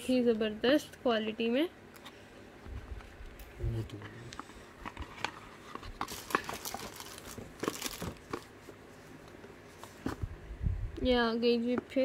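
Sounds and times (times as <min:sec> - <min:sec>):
box and wallet handling: 0:04.7 - 0:09.1.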